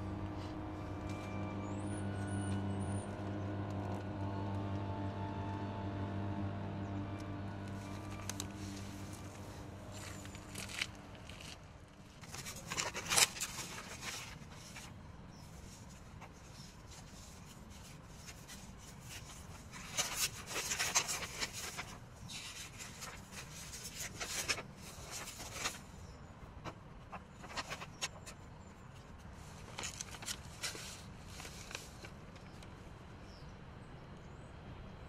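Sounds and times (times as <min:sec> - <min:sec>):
paper rustling: 0:07.7 - 0:15.0, 0:15.6 - 0:25.9, 0:26.6 - 0:28.4, 0:29.2 - 0:32.6.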